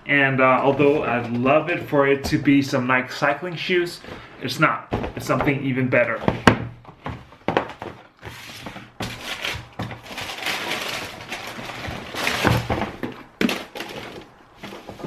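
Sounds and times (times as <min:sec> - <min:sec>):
wrapping paper rustling: 0:08.3 - 0:15.0.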